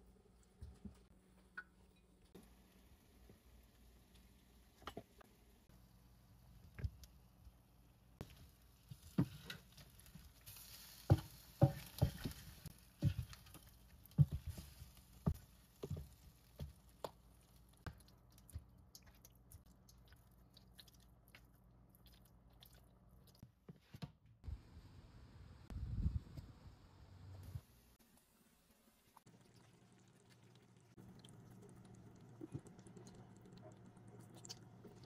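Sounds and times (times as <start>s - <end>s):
utensils knocking in roasting pan: 11.0s - 13.3s.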